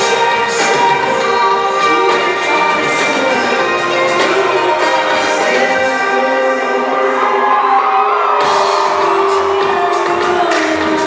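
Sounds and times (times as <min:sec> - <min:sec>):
electronic rock band playing: 0:00.0 - 0:11.0.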